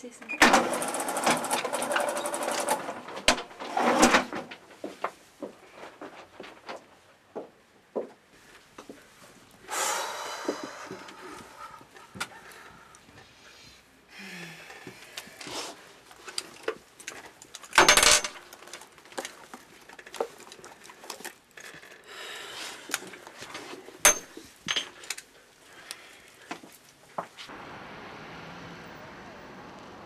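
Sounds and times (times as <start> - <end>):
handbag rummaging clicks and rustles: 15.4 - 22.1.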